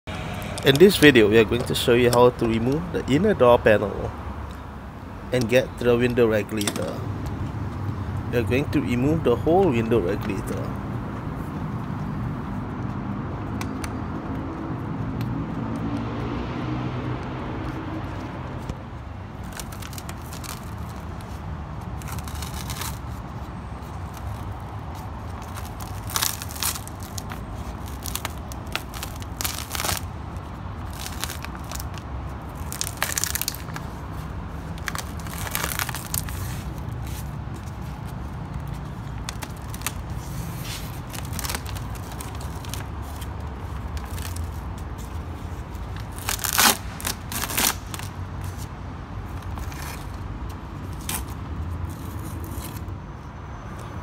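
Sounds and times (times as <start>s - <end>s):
plastic sheet crackling and tearing: 19.4s - 21.2s, 22.0s - 23.1s, 25.2s - 30.1s, 30.8s - 34.0s, 34.7s - 37.2s, 39.2s - 44.6s, 45.6s - 48.6s.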